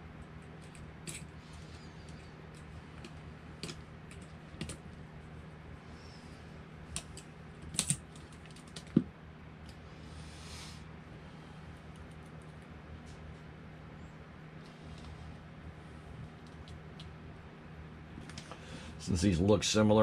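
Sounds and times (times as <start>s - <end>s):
small metal parts clicking: 0.6s - 1.3s, 7.0s - 8.9s.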